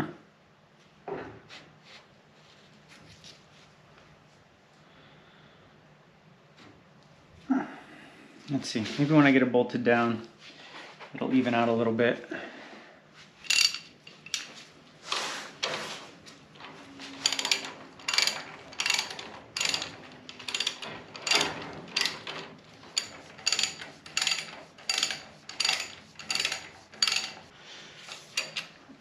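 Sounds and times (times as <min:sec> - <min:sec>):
socket ratchet clicking: 0:17.2 - 0:27.5.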